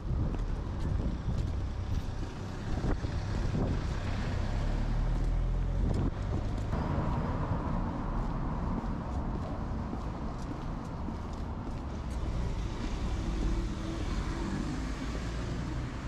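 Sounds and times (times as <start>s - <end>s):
wind rumbling on microphone: 0.0s - 16.0s
car driving past: 2.2s - 9.7s, 12.1s - 16.0s.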